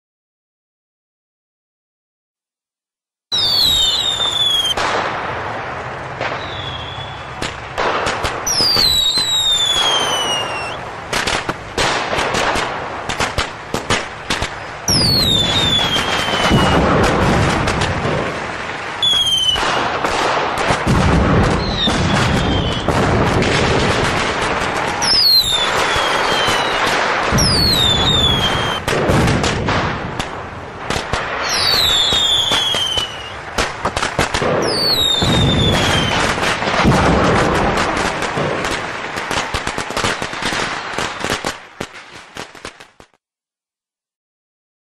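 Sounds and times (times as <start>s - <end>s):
firework whistles falling in pitch: 3.3s - 4.8s, 6.4s - 7.3s, 8.4s - 10.8s, 14.9s - 16.9s, 19.0s - 19.7s, 21.6s - 23.0s, 24.9s - 28.9s, 31.4s - 33.4s, 34.6s - 36.4s
heavy low firework booms: 3.3s - 41.2s
firework crackling and bangs: 3.3s - 43.2s.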